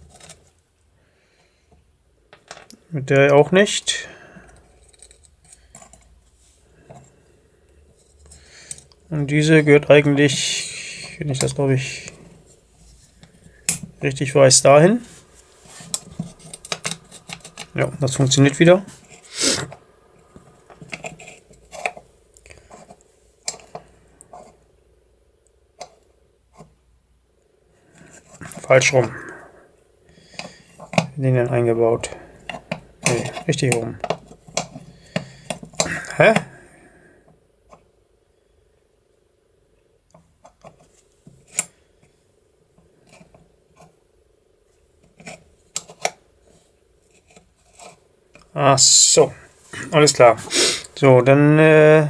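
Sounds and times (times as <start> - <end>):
faint steady hum: 0.0 - 52.0
metal lock parts clicking: 15.9 - 17.8.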